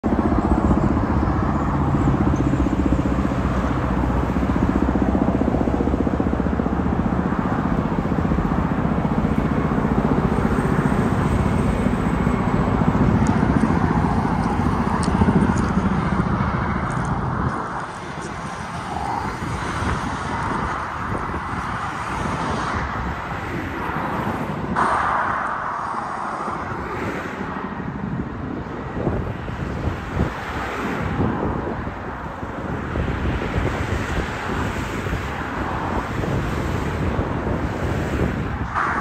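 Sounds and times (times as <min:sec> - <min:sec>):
helicopter rotors thudding: 0:00.0 - 0:30.4.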